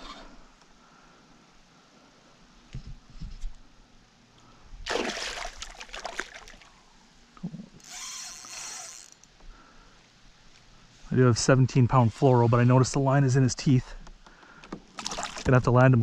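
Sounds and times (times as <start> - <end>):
fish splashing in water: 4.9 - 6.7.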